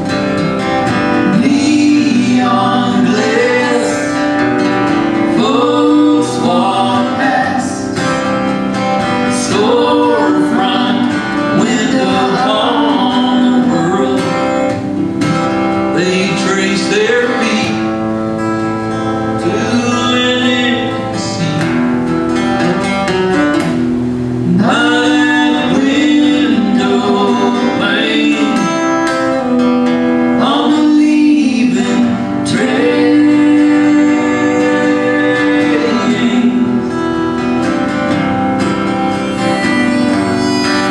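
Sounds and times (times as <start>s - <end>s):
strummed acoustic guitar: 0.0s - 40.9s
man and woman singing together: 1.2s - 8.2s, 9.1s - 14.8s, 15.9s - 17.9s, 19.4s - 21.6s, 24.5s - 29.4s, 30.4s - 37.2s.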